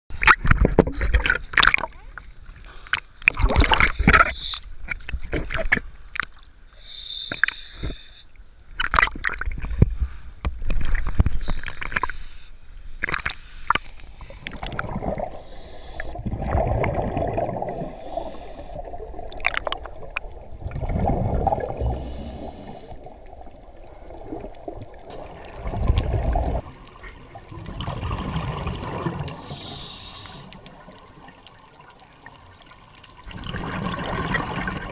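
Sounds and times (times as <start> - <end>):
water splashing: 0.2 - 8.1, 10.6 - 34.9
regulator hiss on inhale: 6.7 - 8.4, 11.4 - 14.5, 15.2 - 16.2, 17.7 - 19.0, 21.8 - 23.2, 29.4 - 30.6
exhaled bubbles bursting: 14.4 - 15.4, 16.1 - 17.9, 18.8 - 22.1, 23.0 - 29.4, 33.3 - 34.9.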